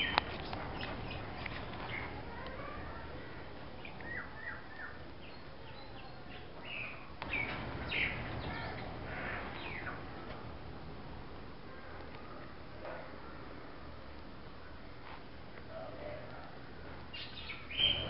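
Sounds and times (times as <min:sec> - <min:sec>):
steady low hum: 0:07.2 - 0:14.4.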